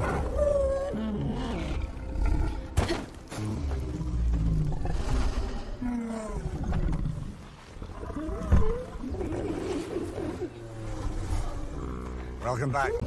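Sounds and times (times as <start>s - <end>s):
background music: 0.0s - 13.0s
dragon growling: 3.3s - 13.0s.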